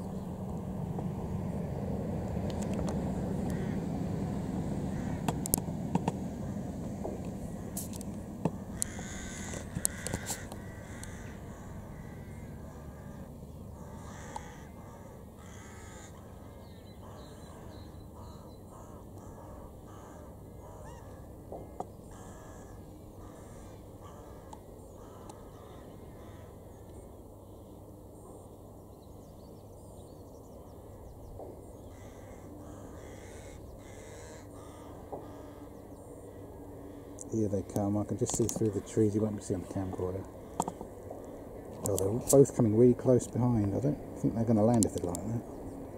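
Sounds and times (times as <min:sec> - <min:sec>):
low background rumble: 0:00.0 - 0:45.9
crows cawing: 0:03.2 - 0:04.0, 0:04.8 - 0:05.5, 0:07.5 - 0:26.9, 0:31.8 - 0:37.9, 0:38.7 - 0:41.8.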